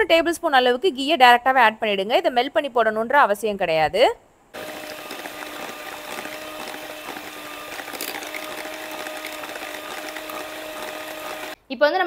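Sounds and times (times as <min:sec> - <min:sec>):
electric hand mixer running: 0:04.6 - 0:11.6.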